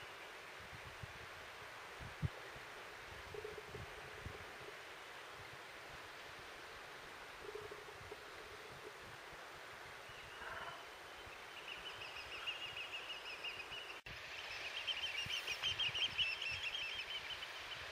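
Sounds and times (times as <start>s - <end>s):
wind noise: 0.0s - 10.8s
flock of birds chattering: 10.0s - 14.0s.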